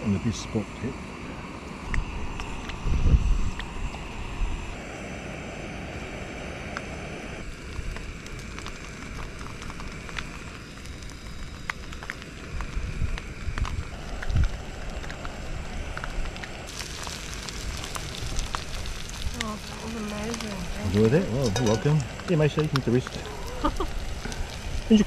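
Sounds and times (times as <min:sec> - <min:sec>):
wind rumbling on microphone: 0:00.0 - 0:25.0
food sizzling in a pan: 0:16.7 - 0:25.0.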